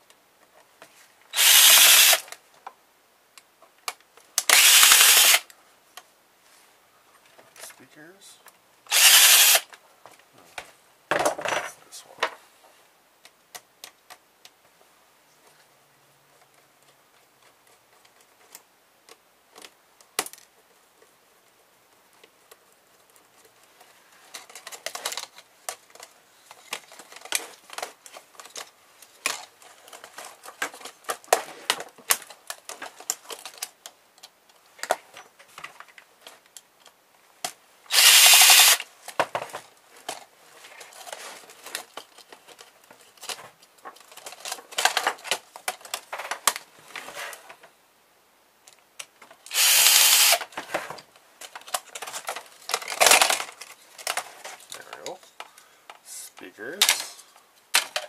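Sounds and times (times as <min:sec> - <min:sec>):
cordless drill running: 0:01.4 - 0:02.2, 0:04.5 - 0:05.4, 0:08.9 - 0:09.7, 0:37.9 - 0:38.8, 0:49.5 - 0:50.4.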